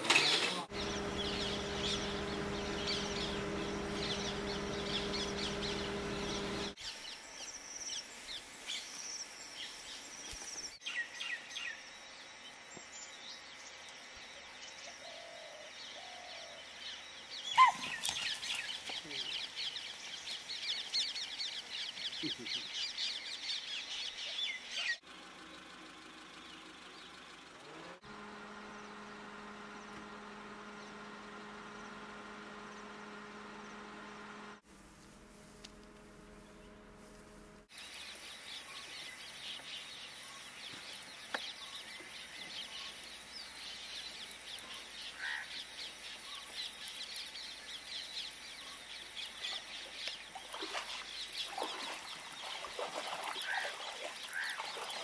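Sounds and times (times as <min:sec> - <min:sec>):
birds calling: 0:00.0 - 0:09.0, 0:14.6 - 0:34.5, 0:35.6 - 0:55.0
dense high insect chorus: 0:00.1 - 0:23.9, 0:37.7 - 0:55.0
steady low hum: 0:00.7 - 0:06.8, 0:25.1 - 0:39.2.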